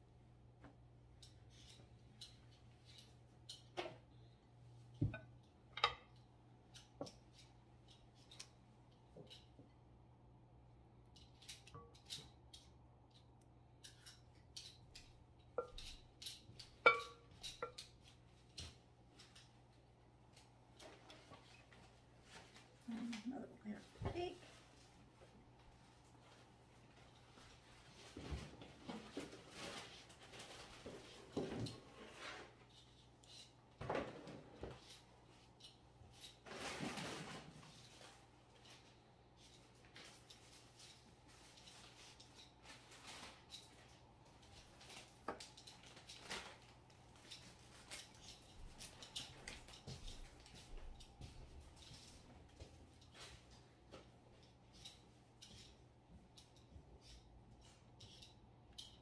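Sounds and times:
scraping rustle: 0:26.8 - 0:43.9.

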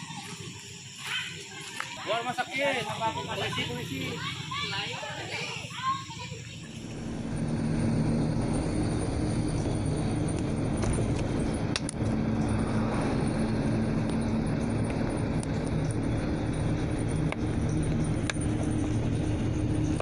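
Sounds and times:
motorcycle engine cruising: 0:00.0 - 0:20.0
wind and road rush: 0:06.9 - 0:20.0
sharp clicks: 0:10.3 - 0:12.1.

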